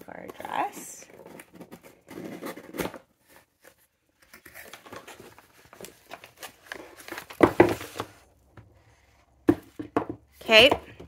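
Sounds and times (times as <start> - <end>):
packaging rustling and crinkling: 0.5 - 8.4.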